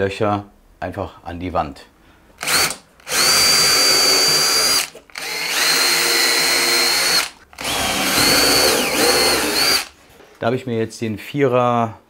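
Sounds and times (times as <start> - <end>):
cordless drill whining: 2.4 - 10.0.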